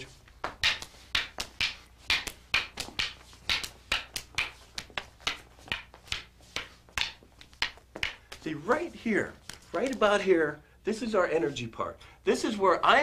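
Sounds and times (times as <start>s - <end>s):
rattan sticks clacking together: 0.4s - 10.2s.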